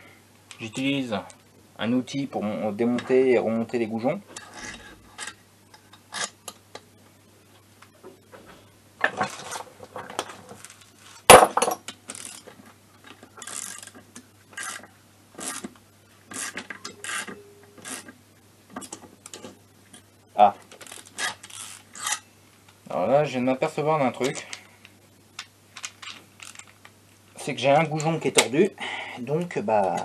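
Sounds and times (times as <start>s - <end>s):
ratchet clicking: 25.8s - 26.7s.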